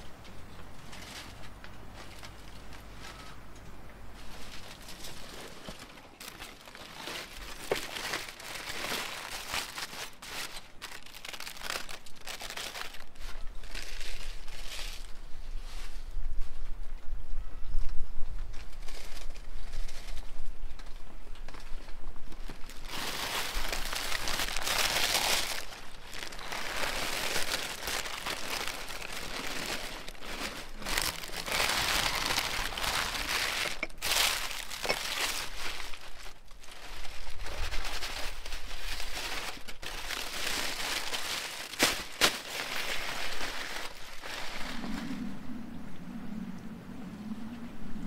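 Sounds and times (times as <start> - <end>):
paper and foil crinkling: 0.8 - 3.4, 4.2 - 16.1, 18.5 - 44.9
sharp crackles: 4.2 - 15.1, 18.6 - 45.4.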